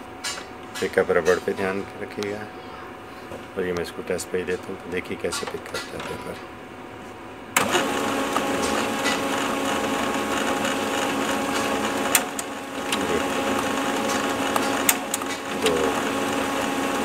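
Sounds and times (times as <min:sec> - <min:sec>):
printer motor whirring: 0:07.5 - 0:17.0
printer paper pickup clicks: 0:11.4 - 0:16.5.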